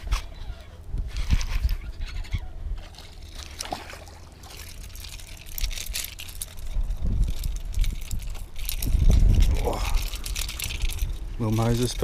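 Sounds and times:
fish splashing at surface: 2.8 - 6.7.

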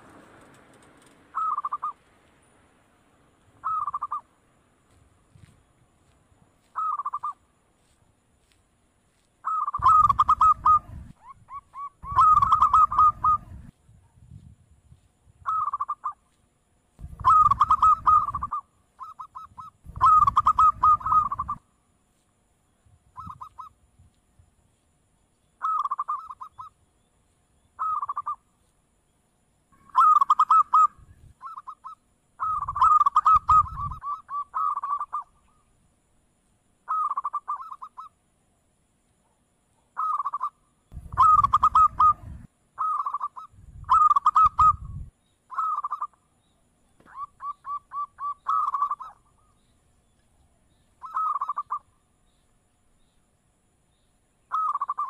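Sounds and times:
dove cooing: 1.3 - 2.0, 3.6 - 4.3, 6.7 - 7.4, 9.4 - 13.7, 15.4 - 16.2, 17.0 - 21.6, 23.2 - 23.7, 25.6 - 26.7, 27.8 - 28.4, 29.8 - 35.3, 36.9 - 38.1, 40.0 - 46.2, 47.0 - 49.5, 51.0 - 51.8, 54.5 - 55.0.

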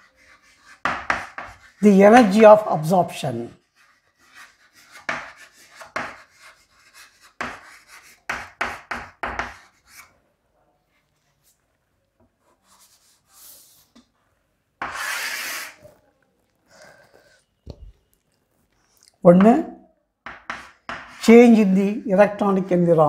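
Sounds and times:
long writing scrape: 0.0 - 1.8, 3.6 - 8.3, 12.4 - 14.0, 14.8 - 16.0
pen scratching on paper: 0.0 - 2.4, 3.6 - 10.1, 14.8 - 15.9.

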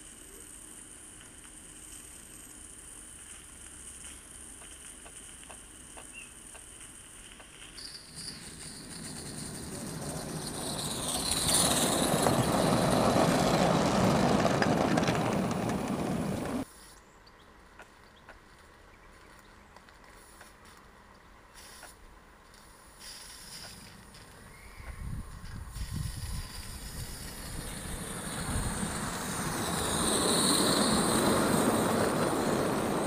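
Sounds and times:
model steam engine running on track: 7.9 - 16.6, 25.8 - 33.0.

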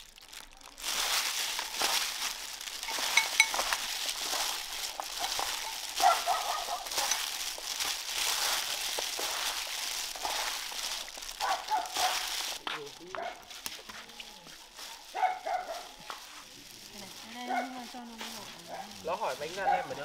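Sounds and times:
salad rustling in a bowl: 0.0 - 20.0
sharp clinks: 2.8 - 4.4.

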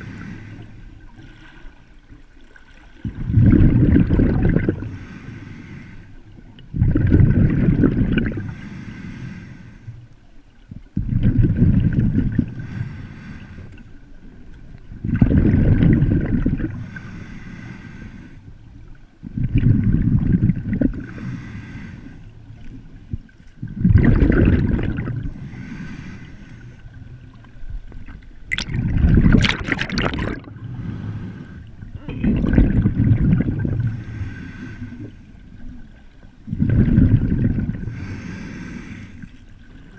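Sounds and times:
water surging and gurgling: 0.0 - 5.0, 6.1 - 8.5, 10.9 - 12.8, 14.0 - 16.9, 22.3 - 25.6, 26.2 - 39.9.

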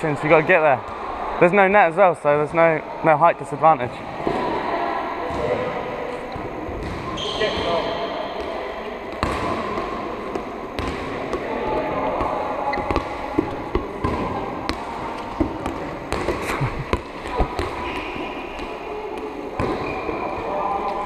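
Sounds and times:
balls bouncing on hall floor: 5.2 - 21.0.

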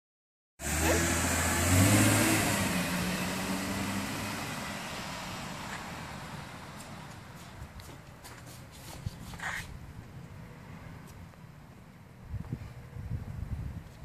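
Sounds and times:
car engine revving: 0.6 - 7.0.

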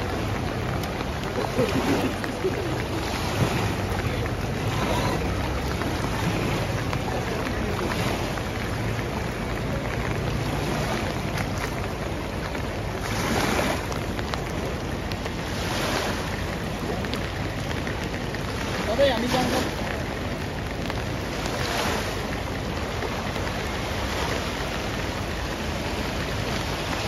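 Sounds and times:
river rushing: 0.0 - 27.0.

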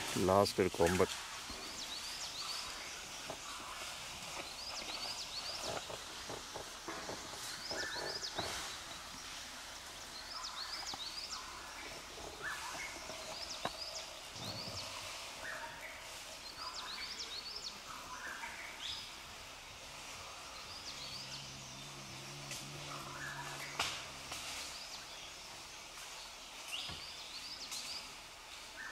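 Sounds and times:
woodland ambience: 0.0 - 28.9
birds whistling: 6.9 - 9.4, 10.0 - 19.2, 20.5 - 25.4.

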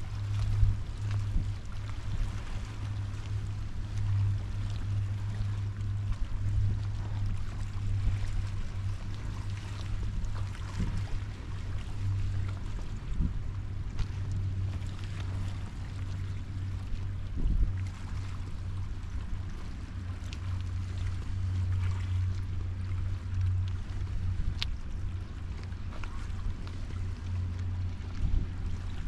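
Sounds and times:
water noise: 0.0 - 29.0
wind: 0.0 - 29.0.

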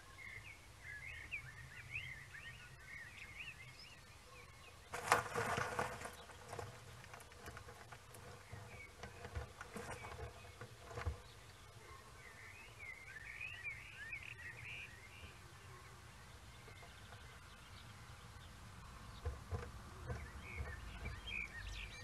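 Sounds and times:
small birds chirping: 0.0 - 22.0
rustling in dry twigs and leaves: 4.8 - 12.3.

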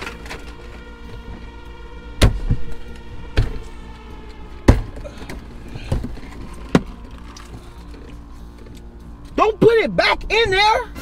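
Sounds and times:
quiet background music: 0.0 - 11.0
sharp thumps: 2.1 - 7.2.

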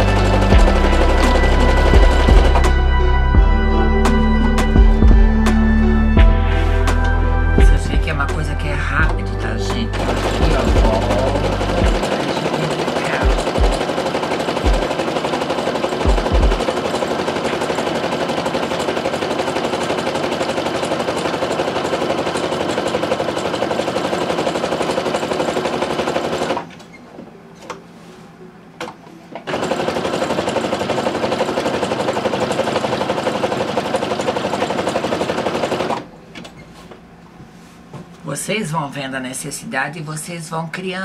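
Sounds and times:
sewing machine running: 0.0 - 3.6, 9.0 - 26.8, 29.4 - 36.1.

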